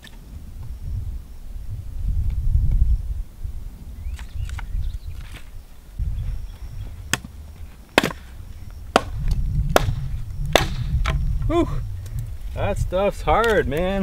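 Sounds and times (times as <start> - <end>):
branch cracking against rock: 7.9 - 8.3.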